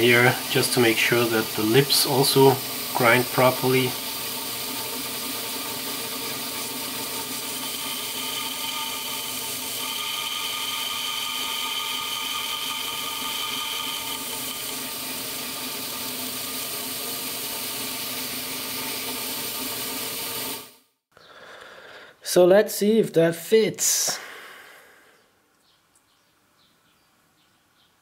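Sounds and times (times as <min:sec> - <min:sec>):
belt grinder whirring hiss: 0:00.0 - 0:20.8.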